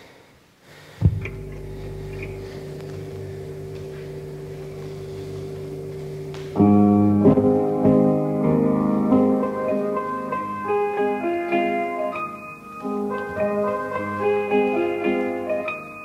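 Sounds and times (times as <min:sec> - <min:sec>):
piano chords: 0:01.0 - 0:16.0.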